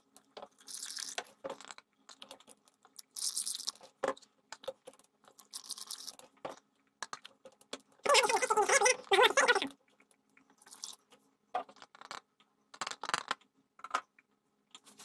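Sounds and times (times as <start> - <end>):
rustling of gloves: 14.8 - 15.0.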